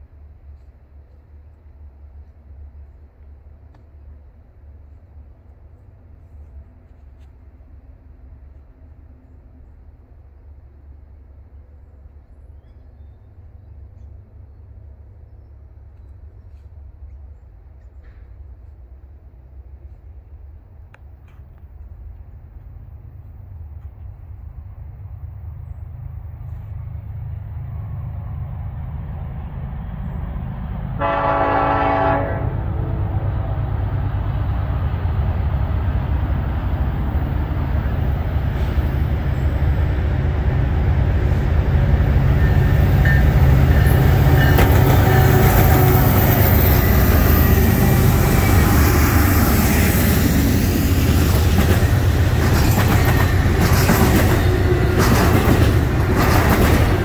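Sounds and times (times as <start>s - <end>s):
diesel locomotive rumble: 0.0s - 57.0s
train horn blast: 31.0s - 33.4s, 42.3s - 47.1s
train wheel clatter: 42.3s - 47.6s, 50.8s - 57.0s.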